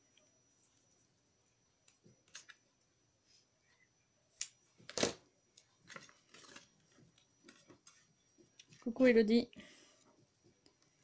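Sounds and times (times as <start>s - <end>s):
paper rustling: 5.8s - 8.0s.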